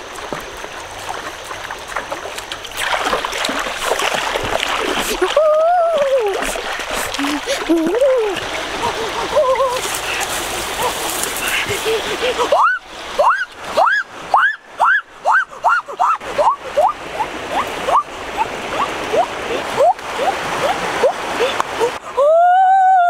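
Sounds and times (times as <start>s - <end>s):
stream water rushing: 0.0s - 23.0s
bird calling: 7.1s - 21.9s.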